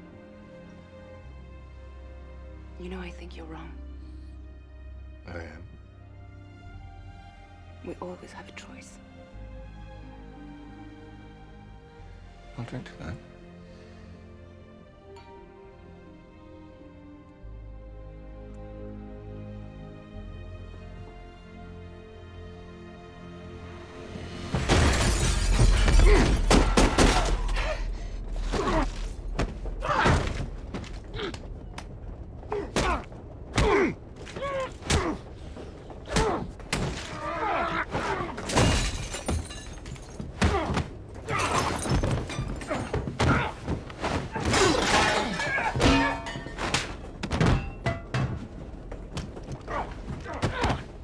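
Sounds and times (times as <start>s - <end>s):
glass shattering: 24.6s - 27.4s, 38.4s - 40.3s, 41.3s - 43.1s, 44.5s - 48.3s
punches and thuds: 40.2s - 48.5s, 49.1s - 51.0s.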